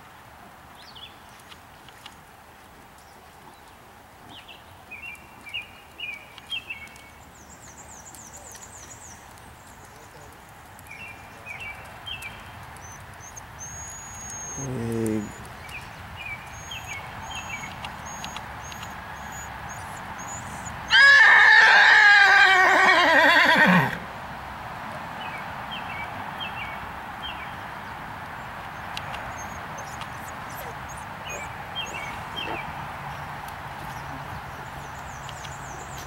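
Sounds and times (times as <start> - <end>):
horse whinnying: 20.9 - 24.0.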